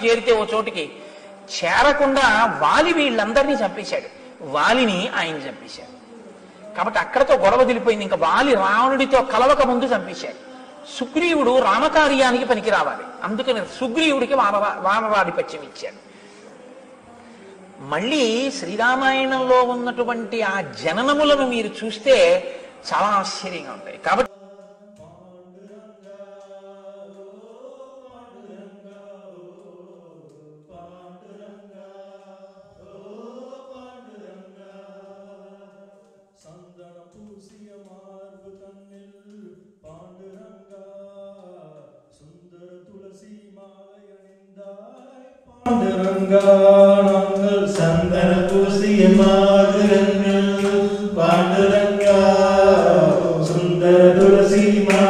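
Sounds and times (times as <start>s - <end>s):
several voices chanting together: 0.0s - 20.0s, 22.2s - 55.0s.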